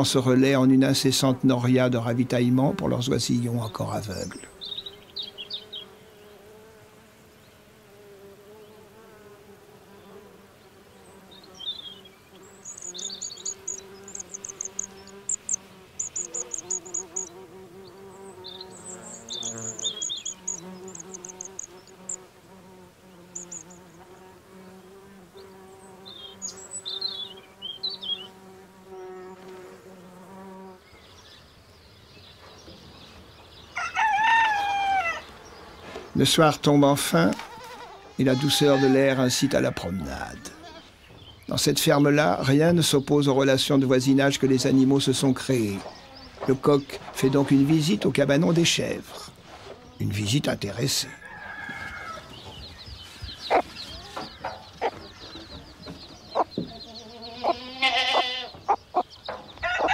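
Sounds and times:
insects buzzing: 0:00.0 - 0:59.9
high bird chirps: 0:11.4 - 0:22.2, 0:23.2 - 0:23.8, 0:25.9 - 0:28.4, 0:51.3 - 0:59.9.

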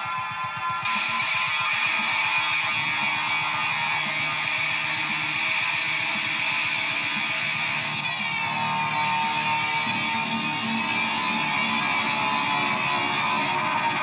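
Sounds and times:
electric guitar with effects: 0:00.0 - 0:14.0.

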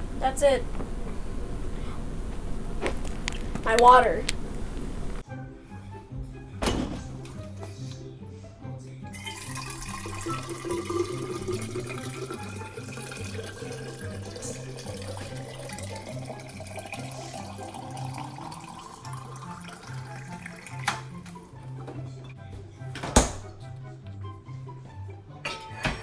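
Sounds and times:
background music with bass line: 0:05.2 - 0:17.7, 0:19.9 - 0:26.0
water filling metal bottle: 0:09.1 - 0:21.4.

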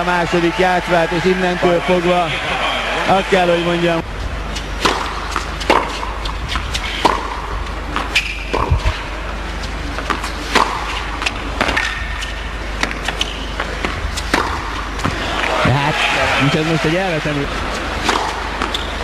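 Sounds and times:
low electrical hum: 0:00.0 - 0:19.0
tennis ball bouncing on court: 0:04.8 - 0:09.1, 0:09.9 - 0:15.5, 0:18.0 - 0:19.0.

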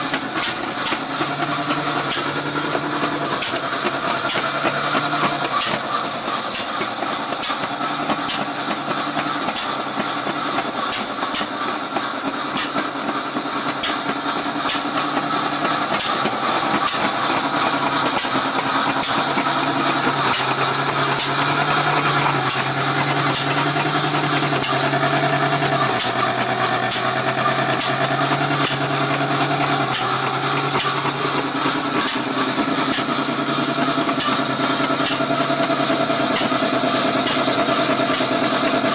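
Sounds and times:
engine driving machine: 0:00.0 - 0:38.9.

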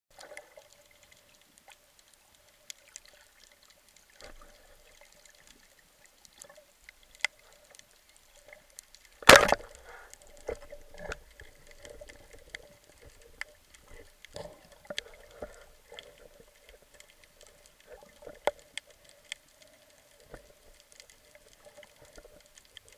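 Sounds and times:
faint underwater hum: 0:00.2 - 0:22.9
speargun firing crack: 0:09.2 - 0:09.6.

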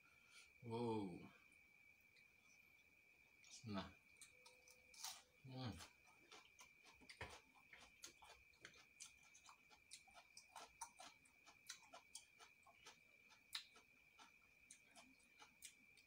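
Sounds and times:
faint high-pitched whine: 0:00.0 - 0:16.0
person chewing lettuce: 0:04.2 - 0:16.0.

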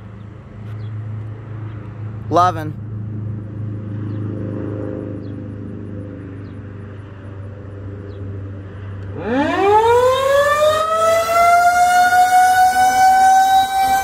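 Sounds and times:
warning siren winding up: 0:09.1 - 0:14.0.

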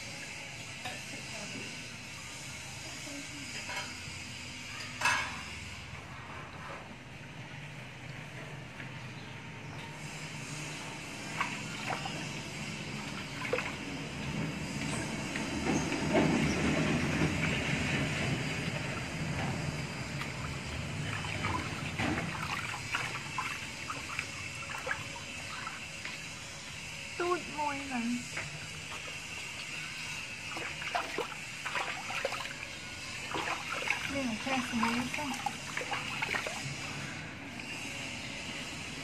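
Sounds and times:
steady low hum: 0:00.0 - 0:39.0
water splashing and dripping in tub: 0:11.1 - 0:15.5, 0:18.6 - 0:26.8, 0:28.5 - 0:36.8.

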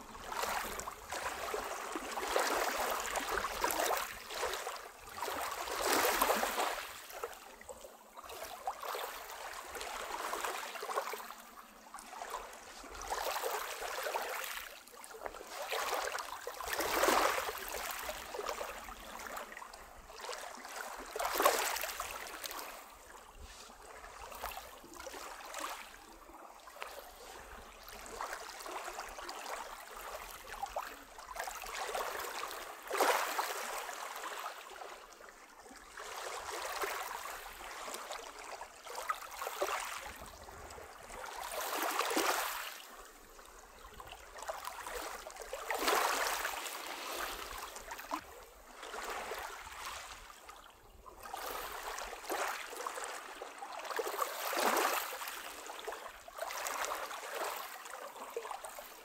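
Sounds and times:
waves lapping on pebble beach: 0:00.0 - 0:07.2, 0:26.9 - 0:34.7, 0:39.4 - 0:42.8, 0:44.7 - 0:48.1, 0:51.3 - 0:53.3.

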